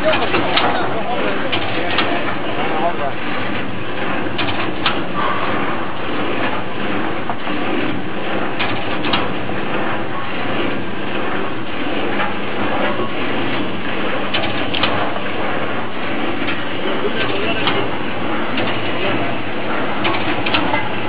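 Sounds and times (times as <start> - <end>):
shelling machine clattering: 0.0 - 10.2, 11.2 - 21.0
low machine hum: 0.0 - 21.0
sharp mechanical clicks: 14.3 - 15.0.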